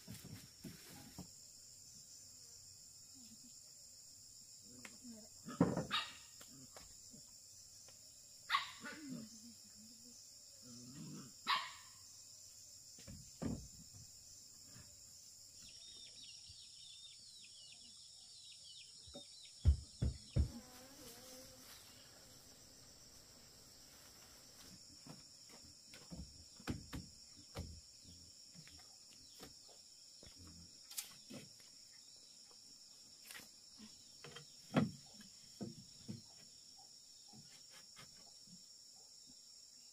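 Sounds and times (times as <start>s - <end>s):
high insect chorus: 0.0s - 39.9s
dull knocks: 13.0s - 14.1s, 19.6s - 20.6s, 26.0s - 27.8s.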